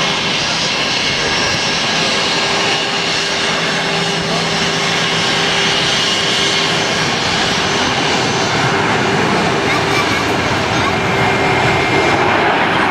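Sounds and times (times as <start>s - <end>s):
jet engines running: 0.0s - 12.9s.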